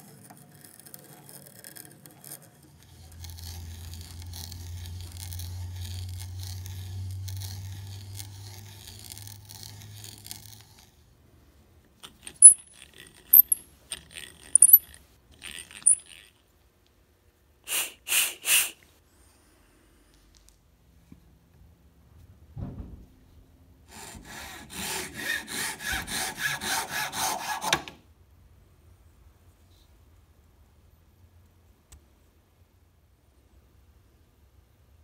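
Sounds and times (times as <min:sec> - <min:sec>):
hand auger boring into wood: 0:01.0 - 0:11.0, 0:12.3 - 0:14.8, 0:15.4 - 0:16.3.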